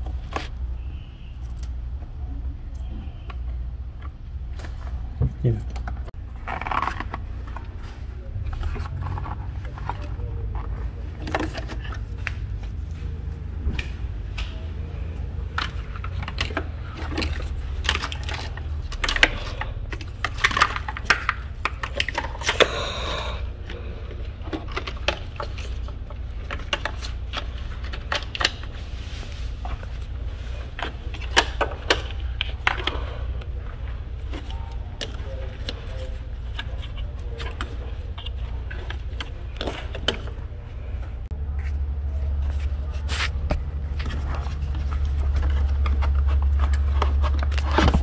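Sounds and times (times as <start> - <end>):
low steady rumble: 0.0 - 48.0.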